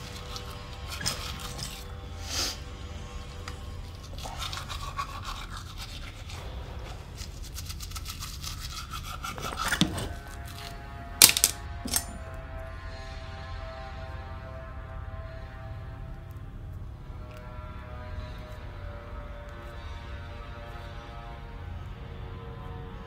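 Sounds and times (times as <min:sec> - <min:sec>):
toothbrush scrubbing teeth: 0:00.0 - 0:10.8.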